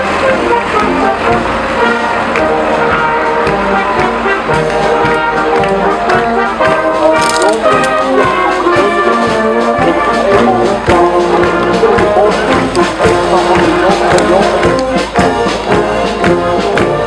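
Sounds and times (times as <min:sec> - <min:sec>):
brass band playing a march: 0:00.0 - 0:17.0.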